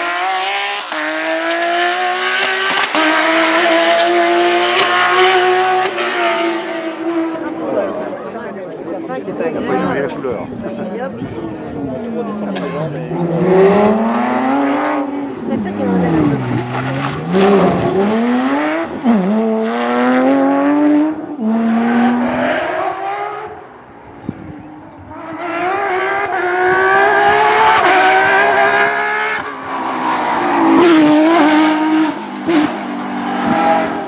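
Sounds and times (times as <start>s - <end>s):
car downshifting with throttle blips: 0.0s - 7.8s, 24.2s - 34.0s
rally car engines revving: 0.0s - 34.0s.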